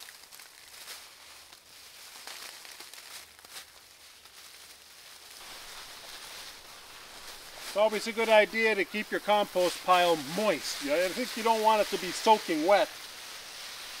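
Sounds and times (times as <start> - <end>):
dry grass clippings rustling: 0.0 - 14.0
hose sprayer hissing: 5.4 - 14.0.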